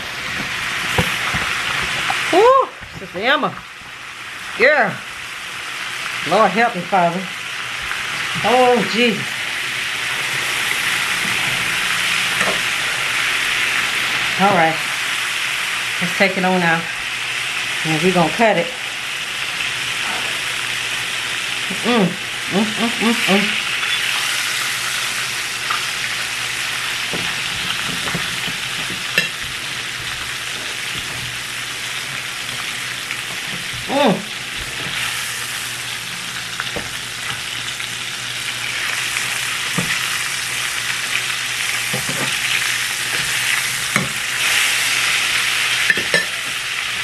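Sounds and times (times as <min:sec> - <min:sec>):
chicken sizzling in a pan: 0:00.0 - 0:47.0.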